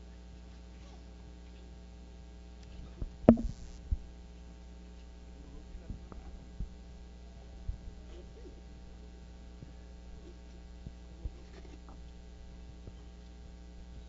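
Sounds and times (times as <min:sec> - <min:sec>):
electrical hum: 0:01.2 - 0:14.0
microphone handling knocks: 0:03.0 - 0:04.0.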